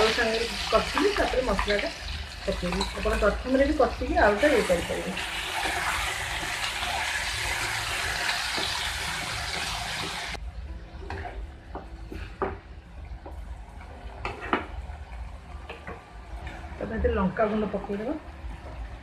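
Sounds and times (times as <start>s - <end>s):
masala paste sizzling in hot oil: 0.0s - 10.4s.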